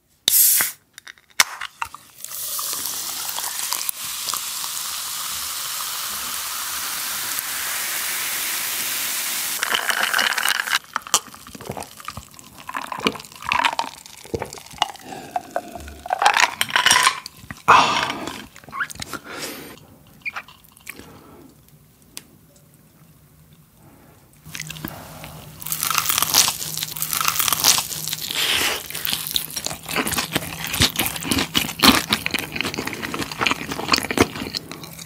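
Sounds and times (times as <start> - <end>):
can cracked open: 0.3 - 2.0
cola fizzing over ice: 2.1 - 17.4
gulps of drinking: 17.6 - 21.1.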